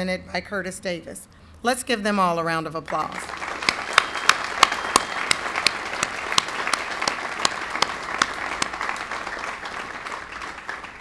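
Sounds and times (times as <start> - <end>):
audience applauding: 3.2 - 11.0
single claps near microphone: 3.2 - 11.0.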